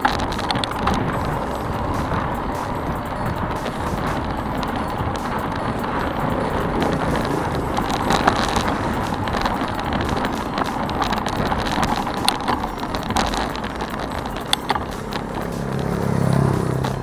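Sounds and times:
bike clicks and rattles: 0:00.0 - 0:17.0
wind and tyre noise: 0:00.0 - 0:17.0.

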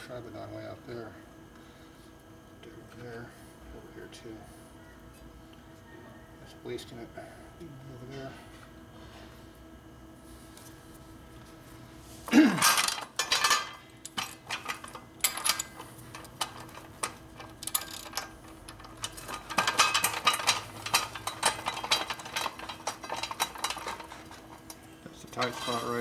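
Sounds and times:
metal-on-metal clanks: 0:12.5 - 0:24.7, 0:25.4 - 0:26.0.

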